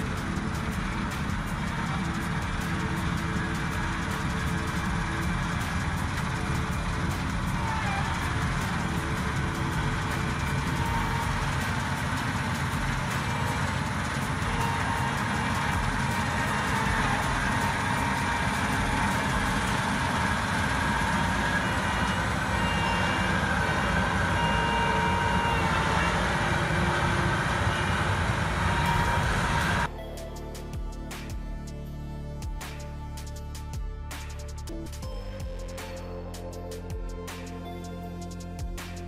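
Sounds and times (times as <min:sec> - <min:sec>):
combine harvester running: 0:00.0 - 0:30.0
faint whine: 0:00.0 - 0:30.2.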